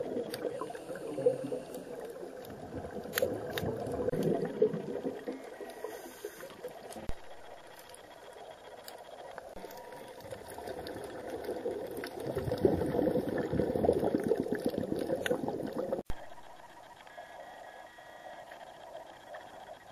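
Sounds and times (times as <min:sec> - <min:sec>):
underwater bubbles from diver: 0:00.0 - 0:07.8, 0:09.3 - 0:16.1
faint steady noise: 0:00.0 - 0:19.9.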